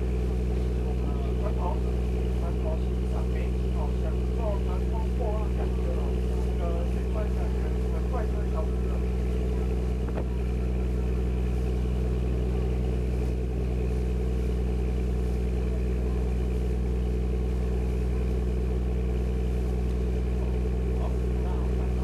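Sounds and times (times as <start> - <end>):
boat engine droning: 0.0 - 22.0.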